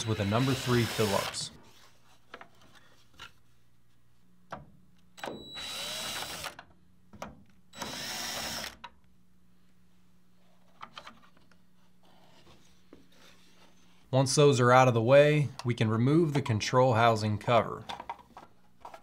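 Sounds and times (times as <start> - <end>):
cordless drill running: 0.0 - 1.5, 5.5 - 6.6, 7.8 - 8.8.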